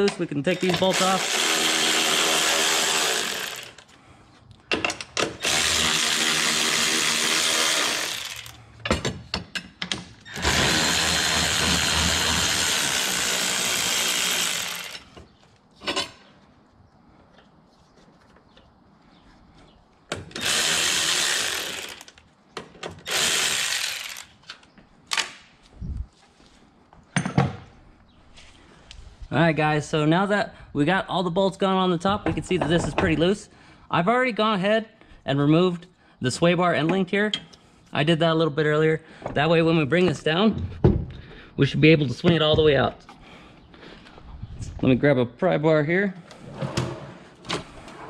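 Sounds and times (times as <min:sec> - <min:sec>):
electric ratchet whirring: 0:00.8 - 0:03.9, 0:05.4 - 0:08.6, 0:10.3 - 0:15.2, 0:20.3 - 0:22.2, 0:23.0 - 0:24.4.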